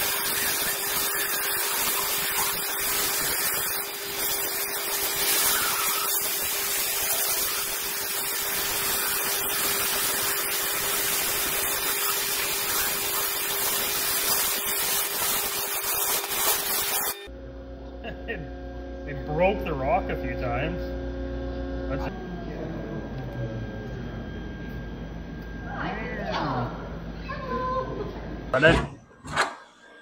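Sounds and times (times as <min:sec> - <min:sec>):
water churning in a tank: 0:00.0 - 0:16.4
waterjet stream hissing: 0:00.0 - 0:17.3.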